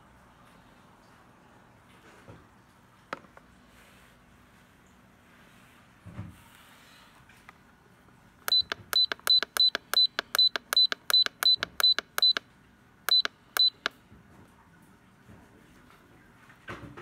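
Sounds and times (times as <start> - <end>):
short high key-press beeps: 8.5 - 12.5, 13.1 - 14.0.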